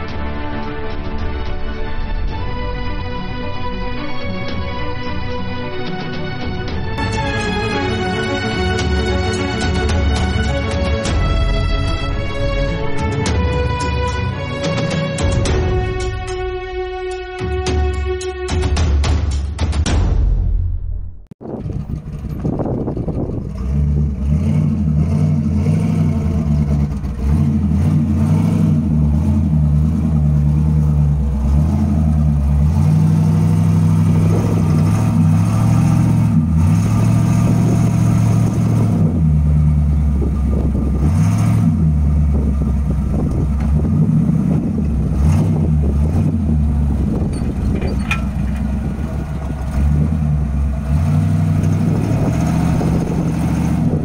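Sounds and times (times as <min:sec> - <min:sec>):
car engine revving: 0:21.4 - 0:54.0.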